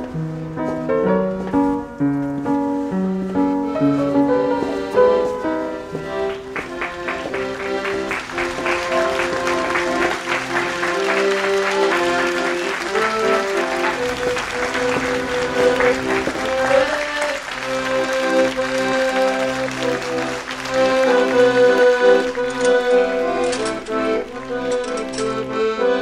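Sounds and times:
accordion melody: 1.7 - 26.0
audience applauding: 6.2 - 25.2.

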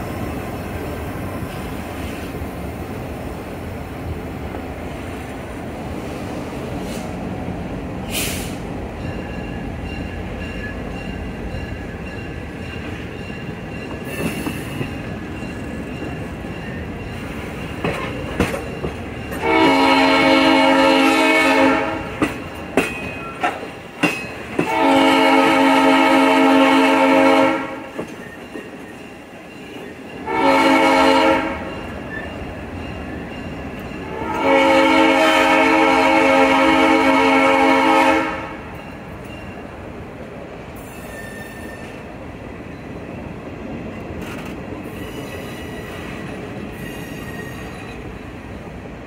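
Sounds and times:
train rumble: 0.0 - 49.0
train wheels clicking: 8.0 - 19.8, 22.0 - 25.0, 27.8 - 30.3, 43.7 - 48.4
locomotive air horn blasts: 19.4 - 22.2, 24.6 - 27.9, 30.2 - 31.7, 34.1 - 38.7.

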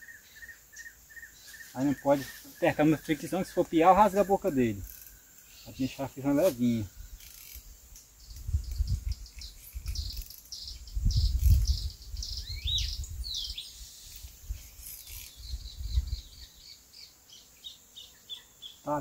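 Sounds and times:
birds chirping: 0.0 - 19.0
wind rumble on microphone: 8.2 - 13.6, 14.2 - 16.4.

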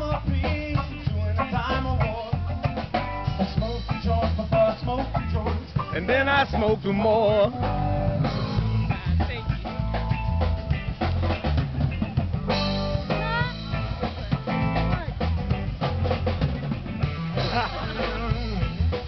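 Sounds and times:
drum kit beat: 0.0 - 19.0
electric guitars: 0.0 - 19.0
live rock band playing: 0.0 - 19.0.

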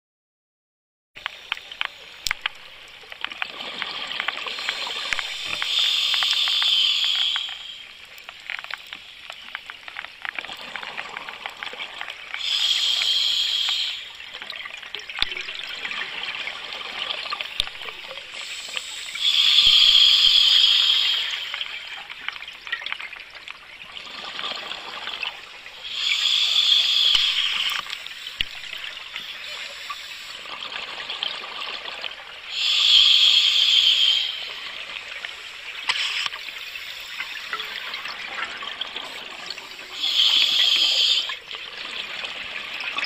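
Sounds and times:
crackling and clicking: 1.2 - 15.5, 17.4 - 23.6, 26.0 - 30.5, 35.2 - 38.5.

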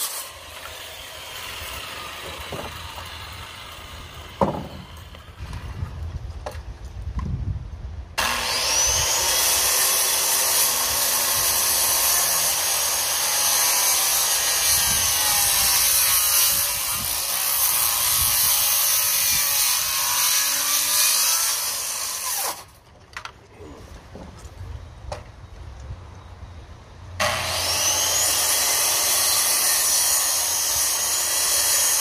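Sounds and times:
electric saw cutting wood: 0.0 - 5.4, 8.2 - 22.7, 27.2 - 32.0.

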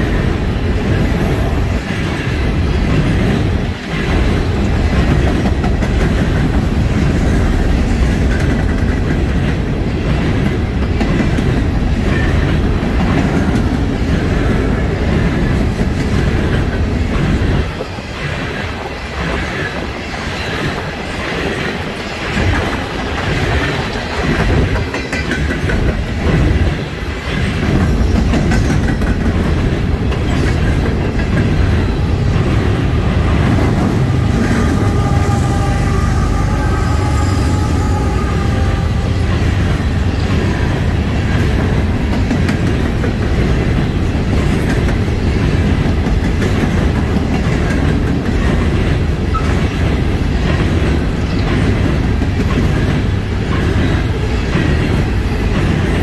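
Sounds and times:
wheels clacking over rail joints: 0.0 - 37.2
freight train rumbling past: 0.0 - 56.0.

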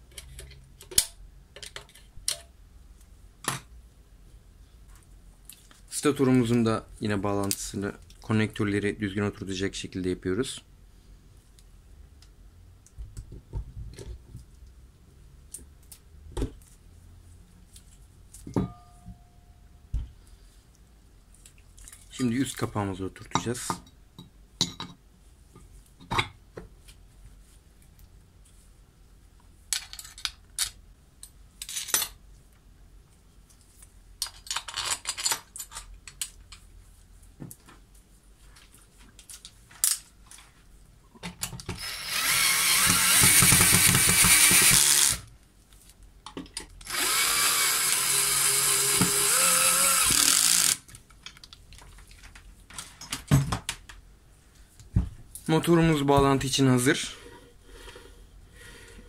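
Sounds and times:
electric drill-driver running: 41.8 - 45.3, 46.8 - 50.8.

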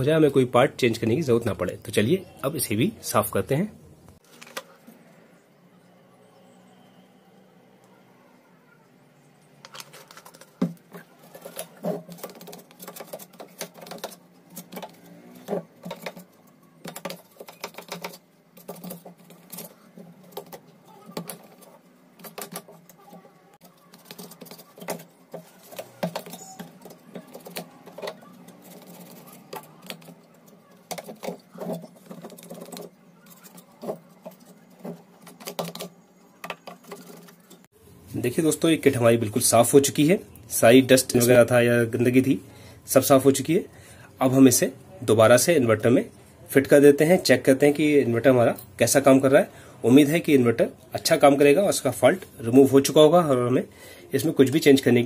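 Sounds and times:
brush scrubbing circuit board: 11.0 - 37.7.

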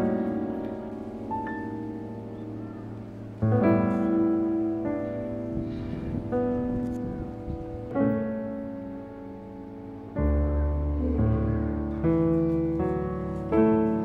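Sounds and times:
slow piano chords: 0.0 - 14.0.

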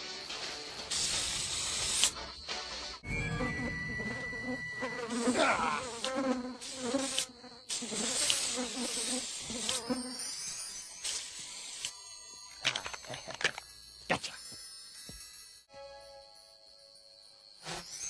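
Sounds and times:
spray can hissing: 0.9 - 2.2, 6.0 - 9.8
insect buzzing: 3.5 - 12.8, 16.6 - 18.0.

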